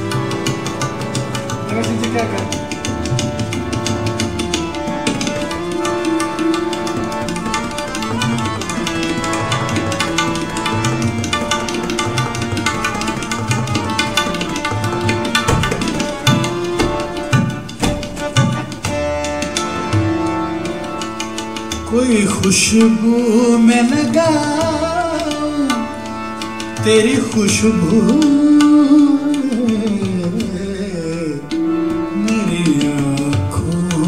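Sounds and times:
held melodic notes: 0.0 - 23.5
tabla rhythm: 0.0 - 34.0.

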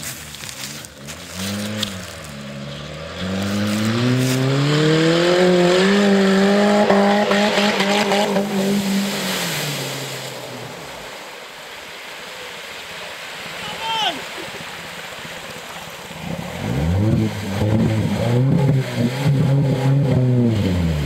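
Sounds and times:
water churning and splashing: 0.0 - 21.0
car engine revving: 0.4 - 11.0, 16.2 - 21.0.

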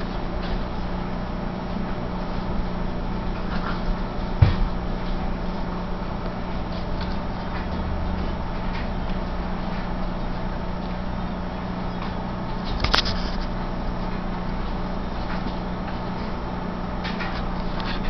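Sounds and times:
low hum: 0.0 - 18.0
thump: 4.4 - 4.7.

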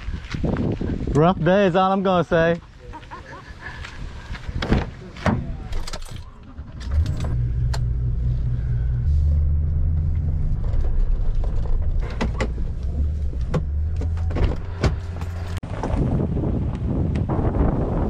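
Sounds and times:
vehicle engine running low: 6.3 - 15.9.

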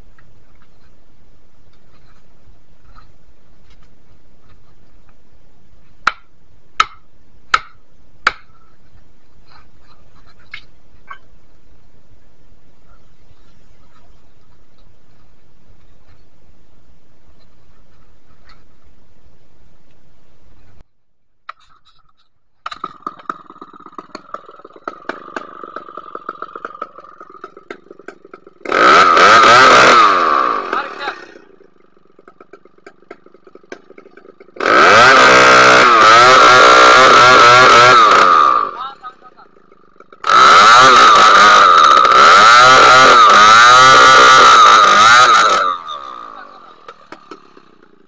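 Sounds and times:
faint chainsaw running: 22.6 - 48.0.

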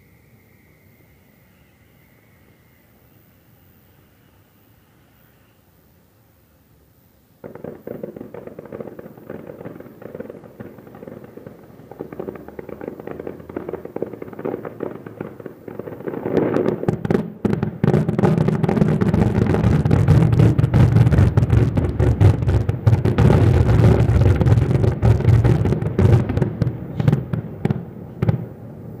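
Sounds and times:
firecracker bangs: 7.4 - 28.6
fireworks booms and cracks: 7.4 - 29.0.

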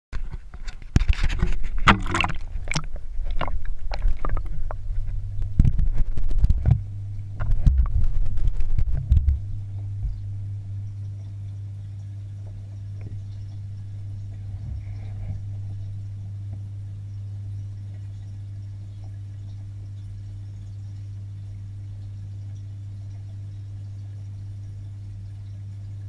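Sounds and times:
water splashing and sloshing: 0.2 - 10.3
steady low hum: 0.2 - 26.0
muffled underwater knocks: 0.9 - 4.8, 7.4 - 10.2, 14.5 - 15.4.

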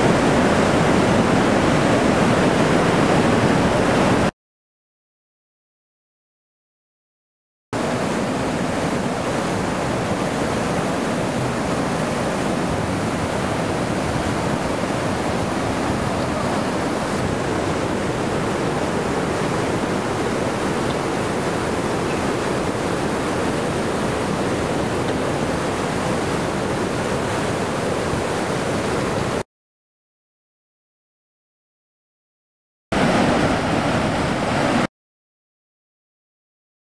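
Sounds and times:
water rushing through sluice: 0.0 - 4.3, 7.8 - 29.4, 33.0 - 34.9.

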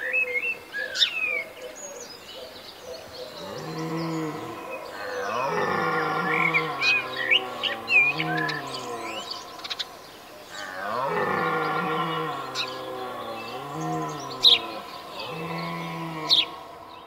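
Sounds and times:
small birds chirping: 0.0 - 17.0
deer stag roaring: 3.4 - 17.0.

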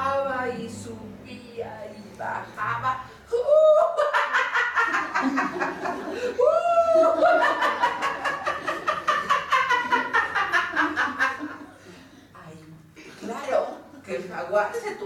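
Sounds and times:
woman laughing loudly: 3.5 - 11.6.

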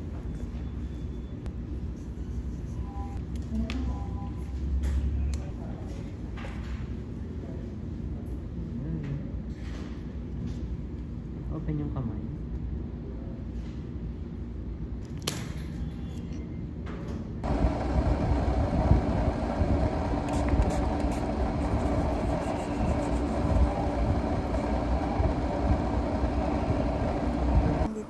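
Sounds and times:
low rumble with hum: 15.7 - 28.0.

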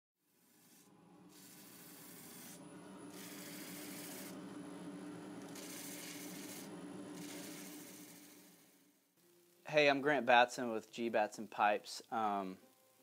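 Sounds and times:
hissing rubbing strokes: 0.4 - 8.9
steady low hum: 0.8 - 9.2.

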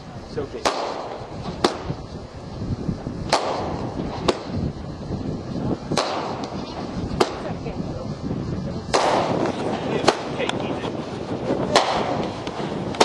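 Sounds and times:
fireworks exploding: 0.0 - 13.0.

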